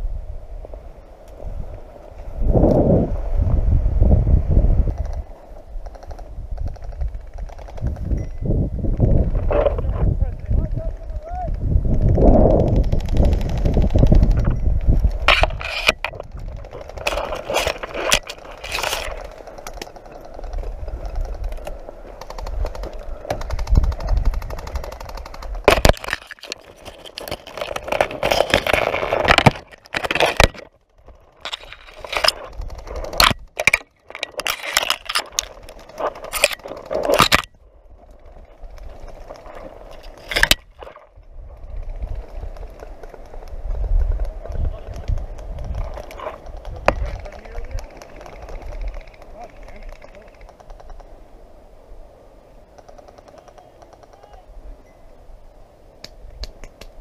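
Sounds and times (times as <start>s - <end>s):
branches and twigs scraping and snapping: 8.9s - 51.2s.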